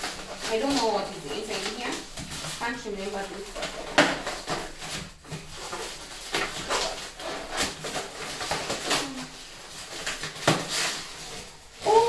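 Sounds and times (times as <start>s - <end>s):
packaging crinkling and rustling: 0.0s - 12.0s.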